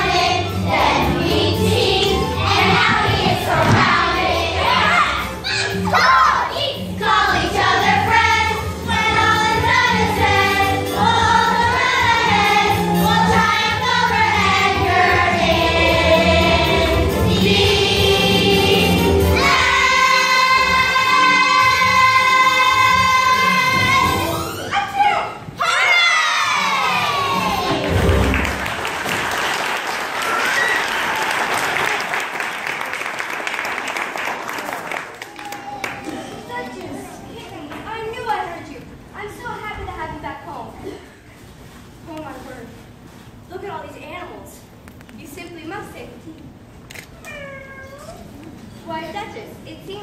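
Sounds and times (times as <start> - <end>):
children's chorus singing: 0.0 - 5.3, 5.9 - 24.4
audience applauding: 27.8 - 36.7.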